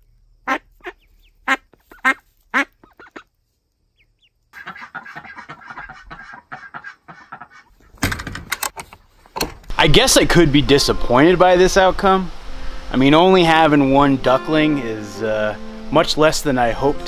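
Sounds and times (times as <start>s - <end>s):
ducks quacking: 0.5s - 3.3s, 4.6s - 7.9s.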